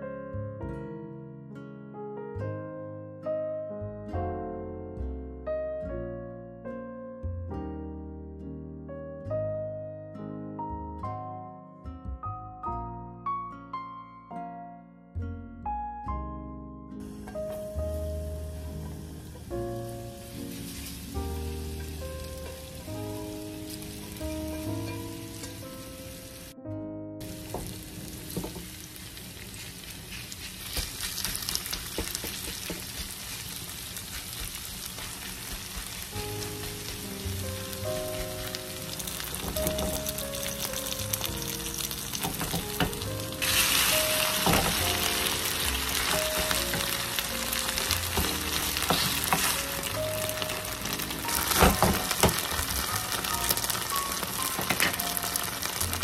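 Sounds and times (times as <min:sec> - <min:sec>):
light background music: 0:00.0 - 0:31.6, 0:34.3 - 0:56.0
batter sizzling in a pan: 0:17.0 - 0:26.6, 0:27.2 - 0:56.0.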